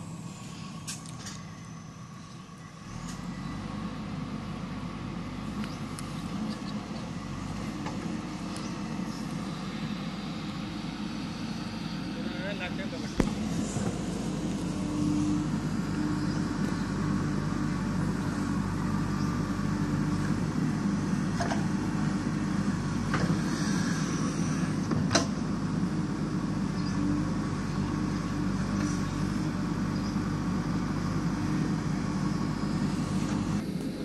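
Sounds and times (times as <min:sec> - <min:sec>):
diesel engine running: 0:00.0 - 0:34.0
backhoe digging into earth: 0:13.1 - 0:34.0.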